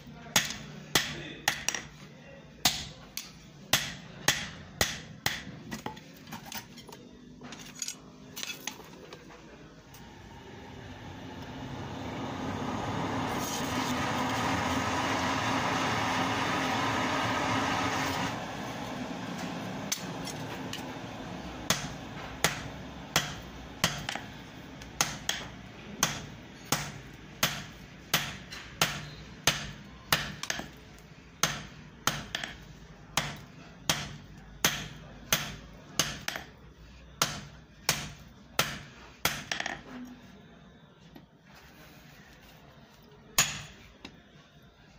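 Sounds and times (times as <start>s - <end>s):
hammer striking iron on anvil: 0.4s - 1.9s, 2.6s - 5.6s, 21.7s - 24.2s, 25.0s - 30.8s, 31.4s - 32.6s, 33.2s - 36.5s, 37.2s - 39.6s, 43.4s - 43.8s
forge air blower running: 9.9s - 25.0s.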